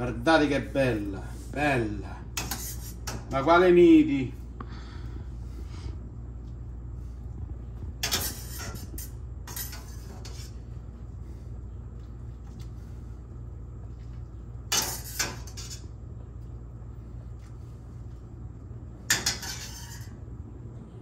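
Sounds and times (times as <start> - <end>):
metal utensil clanking on pots: 19.1 - 20.2.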